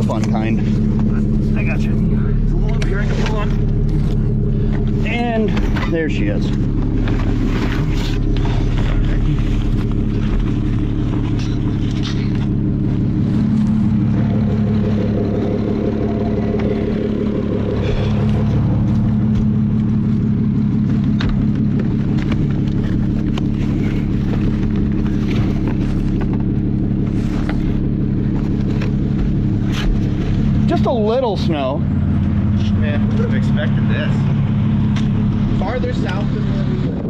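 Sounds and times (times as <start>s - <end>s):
car engine idling: 0.0s - 37.0s
knocks and rustles of luggage: 20.8s - 30.2s.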